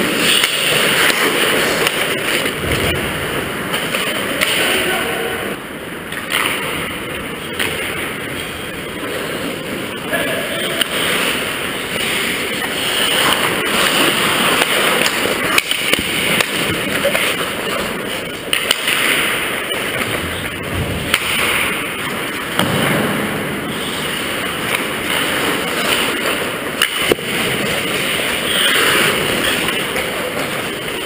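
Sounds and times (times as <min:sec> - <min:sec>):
skate blades scraping ice: 0:00.0 - 0:02.6, 0:10.8 - 0:22.6, 0:23.7 - 0:31.0
hockey sticks and puck clacking: 0:00.0 - 0:05.1, 0:06.0 - 0:31.0.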